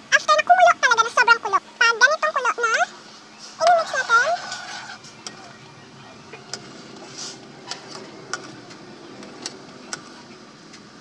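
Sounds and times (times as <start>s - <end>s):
gas burner rushing: 3.0s - 11.0s.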